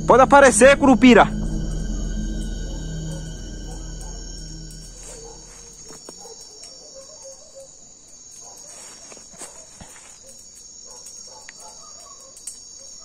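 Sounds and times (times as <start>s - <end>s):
crickets chirring: 0.0s - 13.0s.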